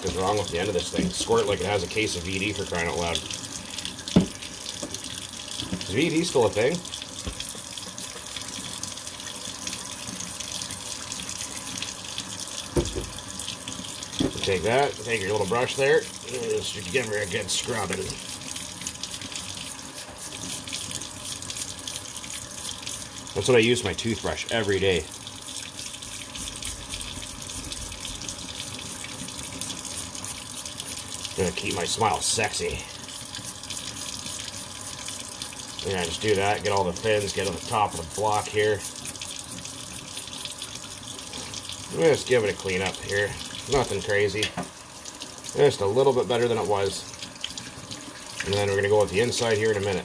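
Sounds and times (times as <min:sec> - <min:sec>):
tap running into metal sink: 0:00.0 - 0:01.8, 0:04.1 - 0:05.0, 0:05.6 - 0:06.1, 0:07.2 - 0:07.6, 0:12.6 - 0:13.3, 0:14.1 - 0:14.6, 0:43.7 - 0:44.8
toothbrush scrubbing: 0:05.8 - 0:09.1, 0:09.7 - 0:11.9, 0:14.4 - 0:44.4.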